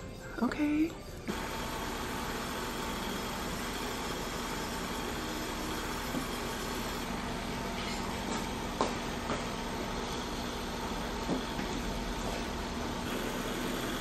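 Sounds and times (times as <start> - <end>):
machine hiss: 13.0 - 14.0.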